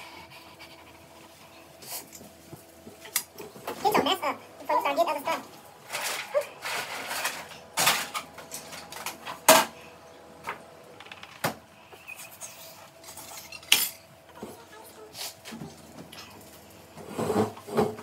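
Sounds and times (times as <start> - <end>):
dishes and utensils clinking: 13.0 - 14.1.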